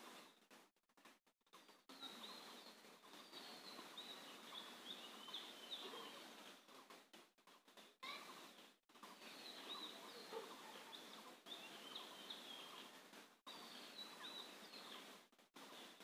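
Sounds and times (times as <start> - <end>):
faint background hiss: 1.6 - 16.0
faint bird chirps: 1.9 - 6.5, 8.0 - 16.0.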